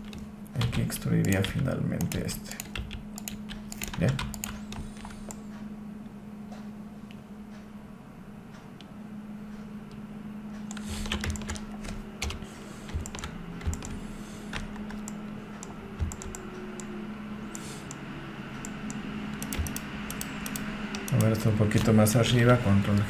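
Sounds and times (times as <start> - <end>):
keyboard and mouse clicking: 0.0 - 5.4, 10.7 - 16.9, 18.6 - 22.0
low steady hum: 0.0 - 23.0.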